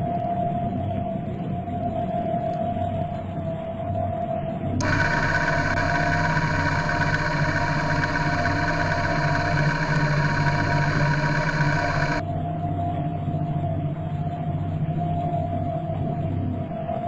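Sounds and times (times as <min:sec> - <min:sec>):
electric motors whining: 0:04.8 - 0:12.2.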